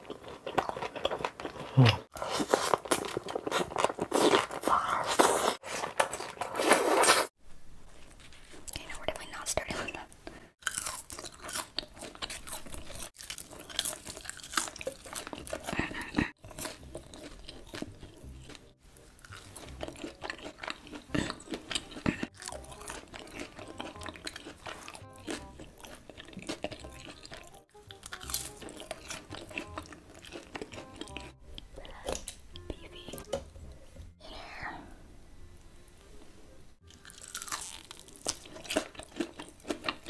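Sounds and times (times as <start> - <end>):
crunchy bites and wet chewing: 0.0 - 6.4, 10.6 - 32.4, 36.8 - 40.0
faint background music: 8.7 - 40.0.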